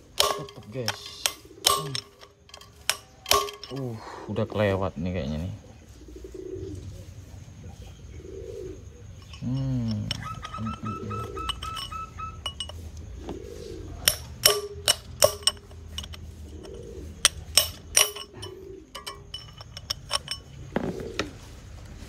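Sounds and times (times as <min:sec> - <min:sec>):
steel tool clinking on metal: 0:00.0 - 0:04.0, 0:09.1 - 0:13.0, 0:14.0 - 0:20.7.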